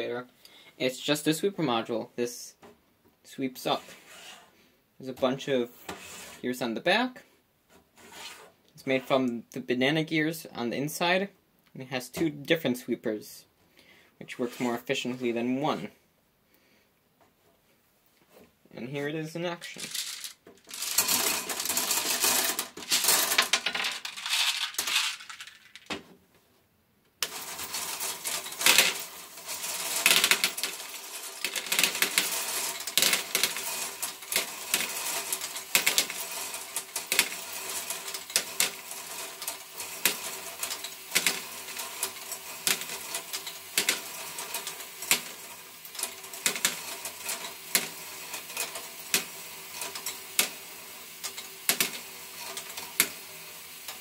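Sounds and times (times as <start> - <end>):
plastic balls clattering: 19.5 - 26.1, 27.2 - 50.6.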